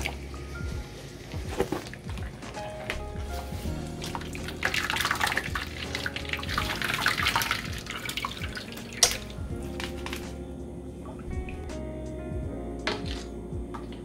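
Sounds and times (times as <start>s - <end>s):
background music: 0.0s - 14.0s
water running and splashing: 3.7s - 10.3s.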